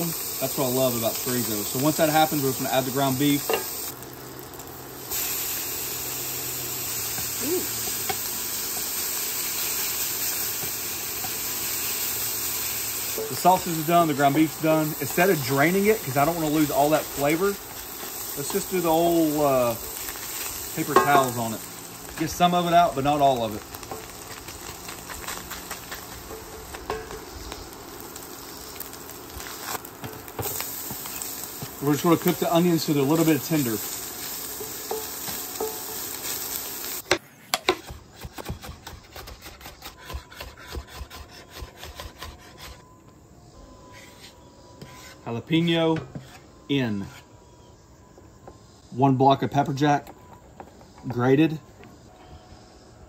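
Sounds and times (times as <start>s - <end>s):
meat sizzling in a skillet: 0.0s - 37.1s.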